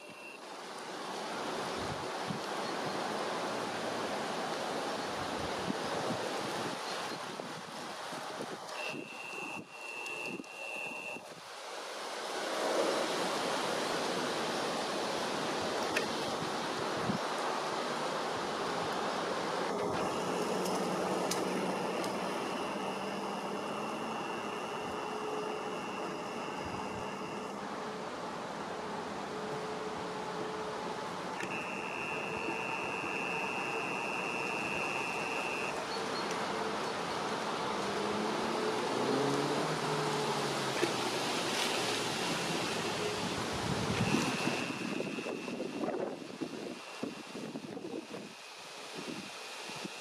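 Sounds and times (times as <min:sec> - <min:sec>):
thin high whine: 0:00.0 - 0:00.4, 0:08.7 - 0:11.5, 0:19.6 - 0:28.2, 0:29.2 - 0:36.8, 0:40.8 - 0:50.0
faint steady hum: 0:00.0 - 0:50.0
outdoor background hiss: 0:00.0 - 0:50.0.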